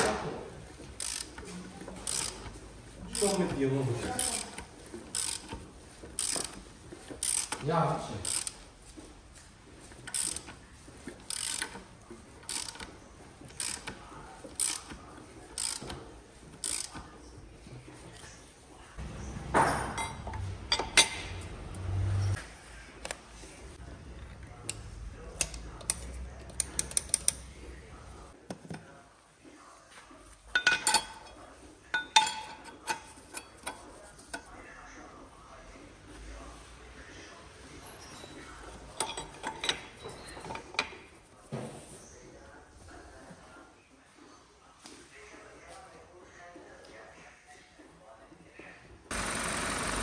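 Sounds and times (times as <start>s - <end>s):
ratchet wrench clicking: 1.0s - 1.4s, 2.0s - 6.6s, 7.2s - 7.6s, 8.2s - 8.6s, 10.1s - 10.6s, 11.2s - 11.8s, 12.4s - 12.9s, 13.6s - 15.0s, 15.6s - 16.0s, 16.6s - 17.0s
metal tools clinking: 30.5s - 31.4s, 37.8s - 41.0s.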